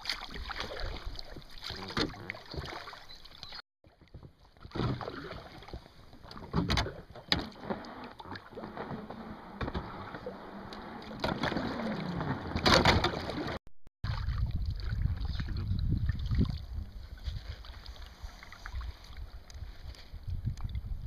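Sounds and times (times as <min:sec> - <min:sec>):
sharp splashes and knocks: 0:00.0 - 0:09.0, 0:11.1 - 0:16.6
water splashing around boat: 0:00.0 - 0:21.0.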